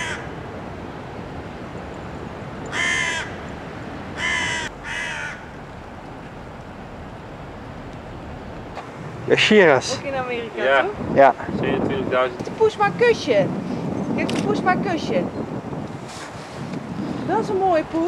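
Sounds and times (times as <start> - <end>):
crow cawing: 0.0 - 0.3, 2.7 - 3.4, 4.2 - 5.6.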